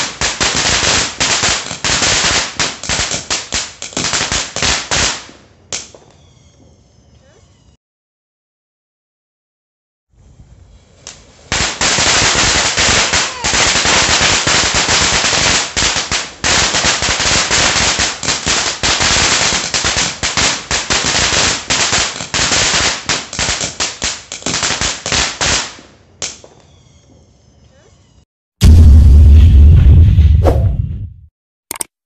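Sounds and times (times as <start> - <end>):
firework fountain hissing: 10.9 - 25.4.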